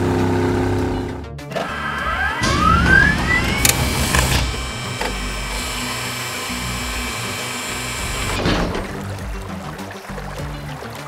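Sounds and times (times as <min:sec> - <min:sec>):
background music: 0:00.0 - 0:11.0
rising whine: 0:01.5 - 0:08.6
machine-like whirring: 0:01.5 - 0:09.0
sharp mechanical clicks: 0:02.4 - 0:08.7.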